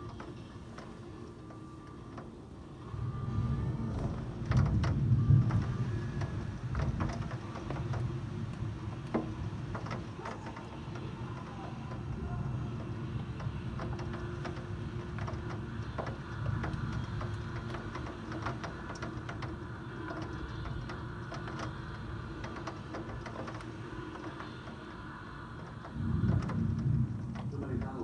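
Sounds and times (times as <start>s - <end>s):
low wind rumble: 0.0s - 28.0s
raindrops ticking on glass: 0.0s - 28.0s.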